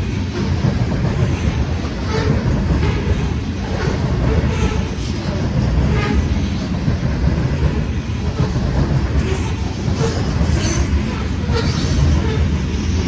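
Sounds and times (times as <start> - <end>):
train wheels rumbling on rail: 0.0 - 13.0.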